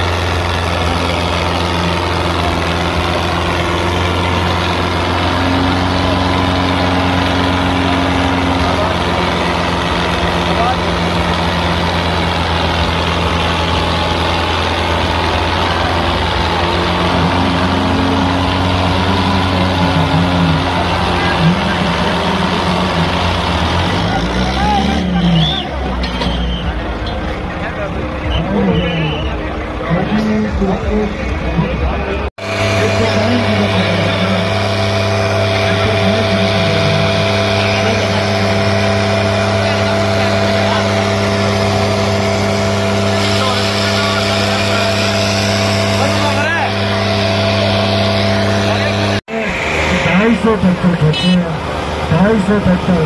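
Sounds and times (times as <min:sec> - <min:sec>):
crowd voices: 0:00.0 - 0:53.0
diesel tractor engines under load: 0:00.0 - 0:53.0
wavering higher note: 0:32.4 - 0:52.2.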